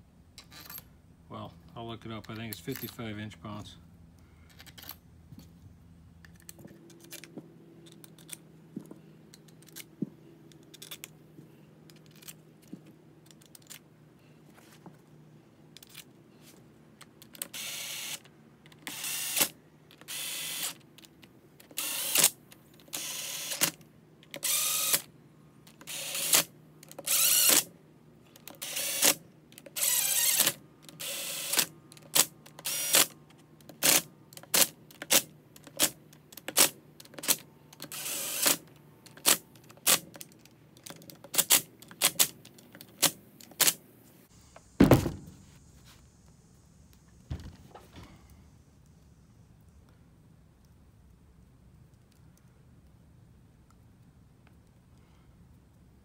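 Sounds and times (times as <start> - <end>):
cordless drill spinning bolts: 17.4 - 18.2, 18.8 - 20.8, 21.7 - 23.7, 24.3 - 25.1, 25.7 - 27.7, 28.4 - 33.1, 35.0 - 40.0.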